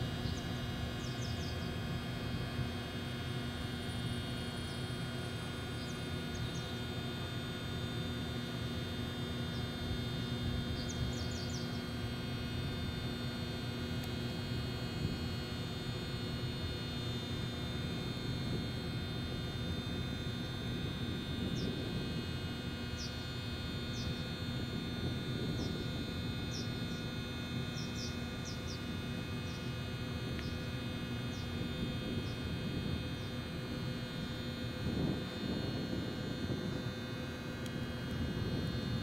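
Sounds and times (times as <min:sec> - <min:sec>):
electrical hum: 0:00.0 - 0:39.0
small bird chirping: 0:00.2 - 0:01.8, 0:10.7 - 0:11.8, 0:26.5 - 0:27.1, 0:27.7 - 0:29.7.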